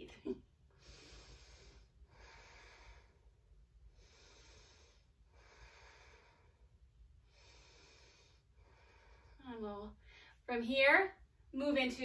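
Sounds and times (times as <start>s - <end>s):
woman breathing slowly: 0.6s - 10.5s.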